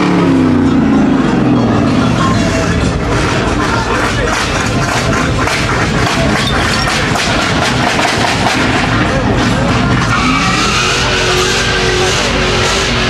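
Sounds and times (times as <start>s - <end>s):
car engine revving: 0.0s - 13.0s
crowd voices: 0.0s - 13.0s.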